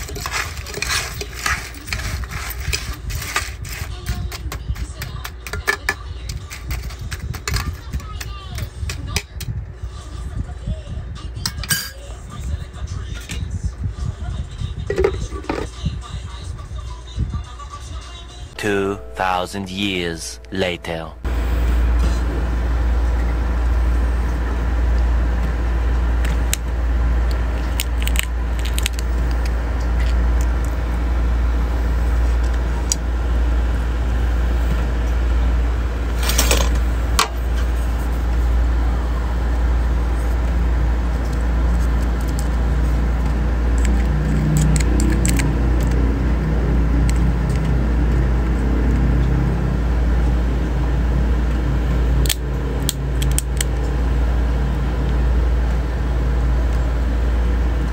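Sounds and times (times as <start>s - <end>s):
crab shells clicking and cracking: 27.3s - 30.6s, 43.8s - 46.1s, 52.2s - 53.7s
loud shell crunch: 27.6s - 29.6s.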